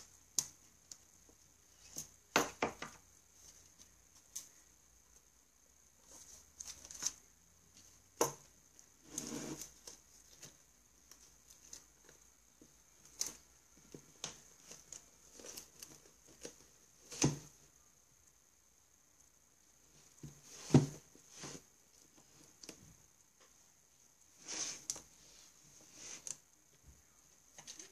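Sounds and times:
pages rustling: 6.0s - 8.0s, 12.9s - 17.6s
book knocking on shelf: 20.6s - 21.0s.

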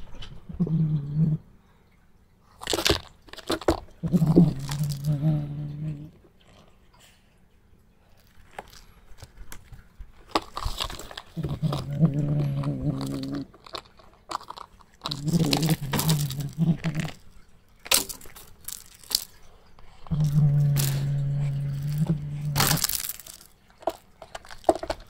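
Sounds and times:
kitten growling: 0.1s - 1.4s, 4.0s - 6.7s, 11.3s - 13.6s, 15.0s - 17.2s, 19.9s - 23.4s
crunching and scratching on cardboard: 2.6s - 5.4s, 8.2s - 25.0s.

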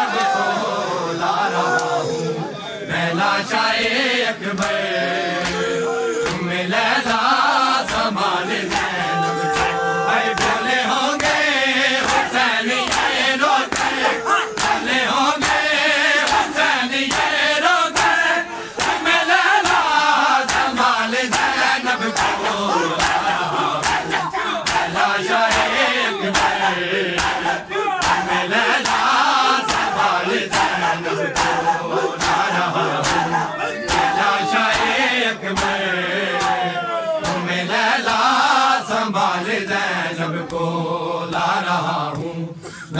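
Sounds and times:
crowd chanting: 0.0s - 42.9s
hands slapping chests: 3.8s - 4.8s, 5.4s - 36.6s, 37.2s - 38.3s.

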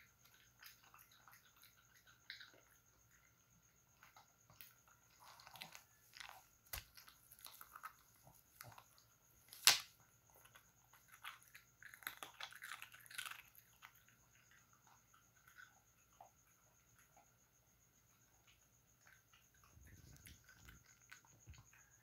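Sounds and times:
dog crunching biscuit: 10.4s - 14.0s.

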